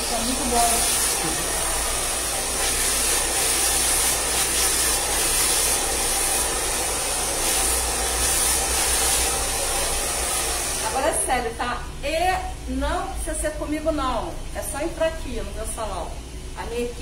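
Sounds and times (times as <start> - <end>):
hair dryer running: 0.0 - 11.2.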